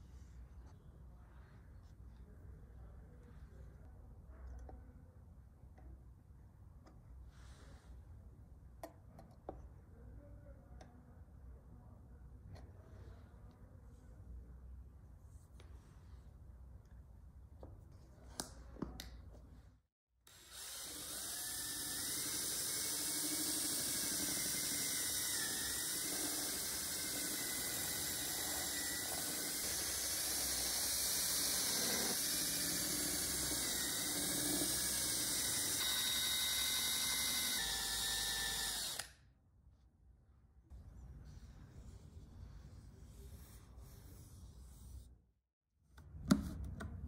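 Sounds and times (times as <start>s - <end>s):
electric power tool whining: 20.3s - 39.2s.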